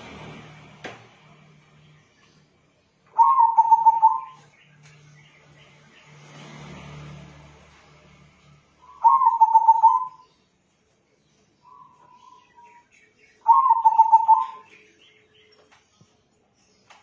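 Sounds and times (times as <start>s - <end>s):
dove cooing: 3.1s - 4.4s, 9.0s - 10.2s, 13.4s - 14.7s.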